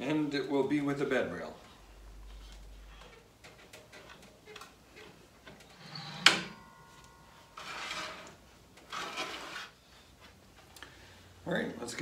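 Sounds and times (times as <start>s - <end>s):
metal scraping slide: 5.0s - 10.1s
metallic clank with ring: 5.7s - 8.5s.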